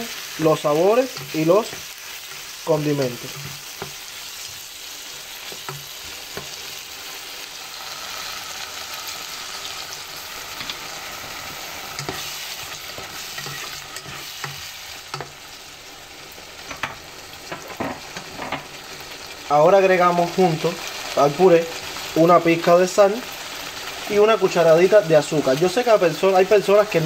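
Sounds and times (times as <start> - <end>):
sauce sizzling in a pot: 0.0 - 27.0.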